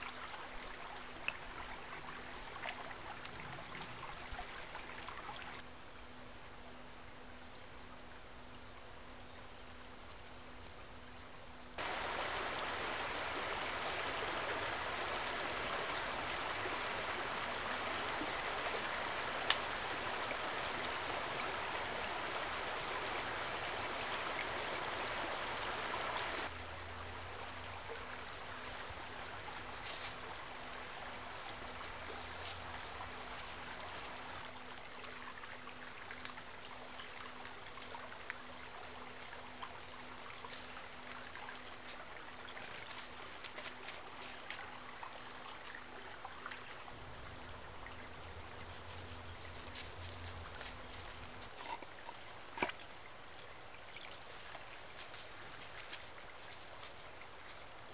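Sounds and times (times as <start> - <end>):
stream trickling and rushing: 0.0 - 5.8, 11.7 - 57.9
faint steady hum: 0.0 - 57.9.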